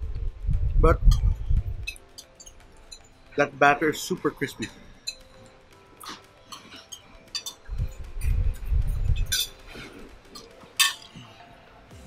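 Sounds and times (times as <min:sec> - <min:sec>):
glass and cutlery clinking: 0:01.1 - 0:03.4, 0:04.0 - 0:08.0, 0:08.6 - 0:11.4.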